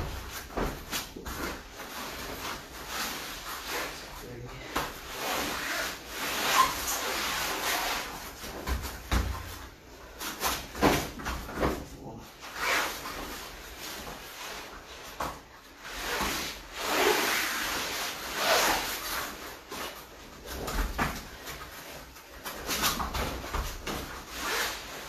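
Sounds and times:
fabric rubbing on foam mats: 0.0s - 25.0s
soft thuds on mats: 8.4s - 9.7s.

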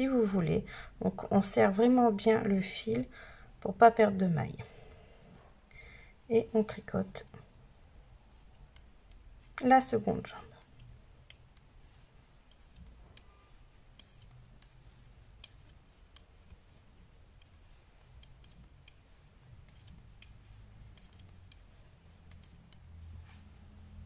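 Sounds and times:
knitting needles clicking: 6.7s - 7.6s, 8.2s - 24.0s.

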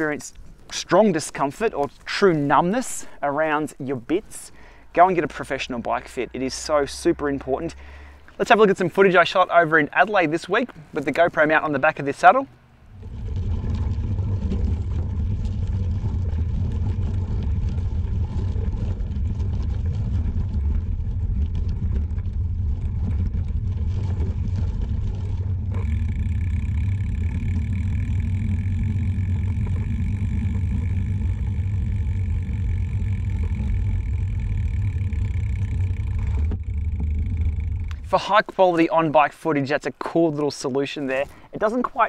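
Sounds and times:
bicycle tyre noise: 12.8s - 39.2s.

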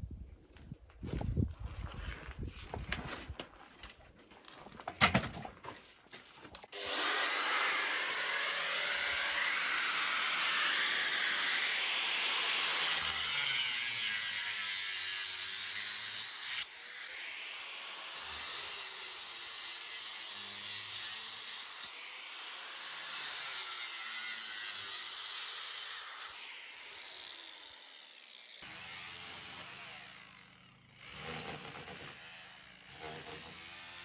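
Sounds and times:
handling knocks and clatter: 2.5s - 6.4s
angle grinder grinding concrete: 6.7s - 34.0s.

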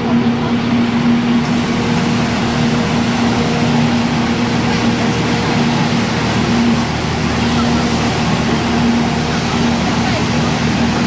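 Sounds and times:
straw crusher humming: 0.0s - 11.0s.

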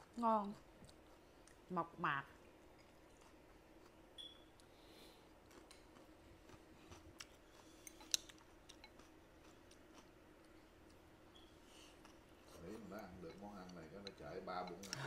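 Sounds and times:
faint chewing: 0.0s - 1.7s, 2.6s - 15.0s
faint room hum: 0.0s - 15.0s
chopsticks clicking: 7.9s - 9.0s.

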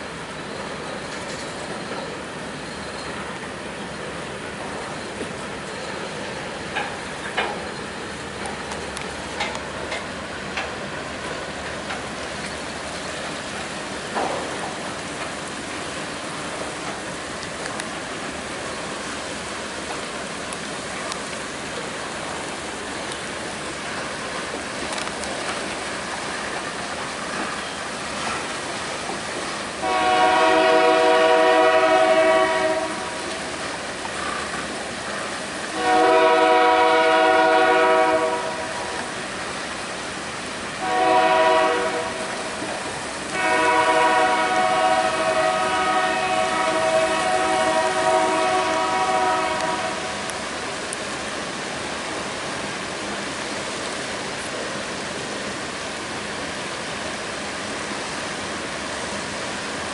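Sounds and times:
freight train wheels rolling: 0.0s - 59.9s
locomotive air horn: 29.8s - 33.3s, 35.7s - 39.0s, 40.8s - 42.4s, 43.3s - 50.3s.

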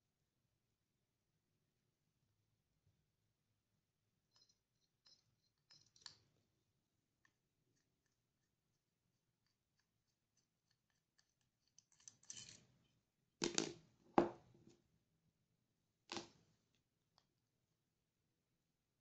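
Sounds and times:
metal parts clicking and knocking: 4.3s - 6.3s, 9.4s - 12.9s.

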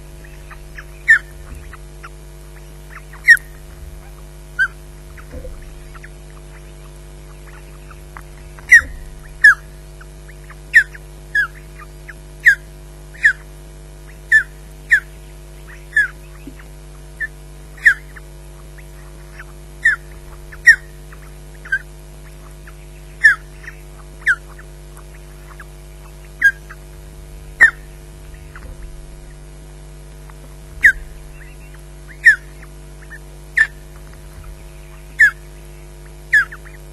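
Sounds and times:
steady hum: 0.0s - 36.9s
bird whistled chirps: 0.2s - 1.8s, 2.6s - 6.8s, 34.4s - 35.5s, 36.3s - 36.8s.

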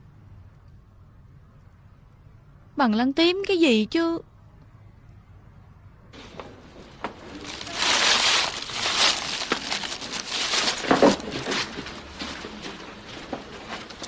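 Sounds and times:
rustling and crinkling with clicks: 6.2s - 14.0s.

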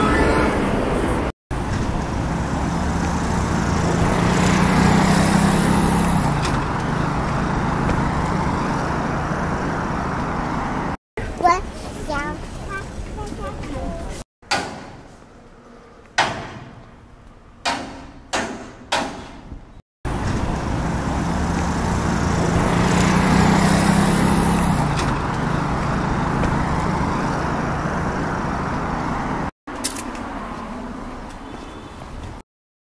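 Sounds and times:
vehicle engine drone: 0.0s - 11.0s, 20.1s - 29.5s
street traffic: 0.0s - 32.4s.

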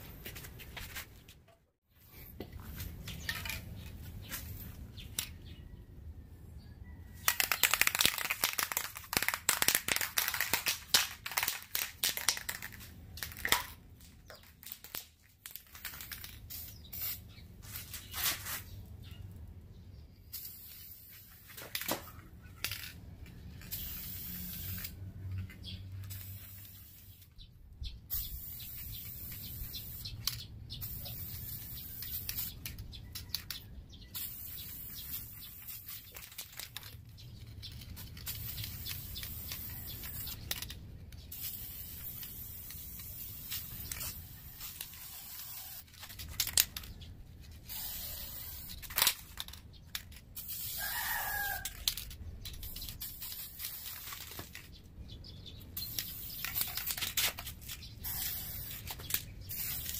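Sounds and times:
spray paint can hissing: 7.2s - 13.7s, 14.3s - 18.8s, 20.2s - 22.8s, 23.4s - 25.1s, 25.8s - 27.3s, 28.1s - 36.9s, 37.6s - 46.8s, 47.5s - 54.6s, 55.8s - 59.9s
rooster crowing: 50.8s - 51.8s.

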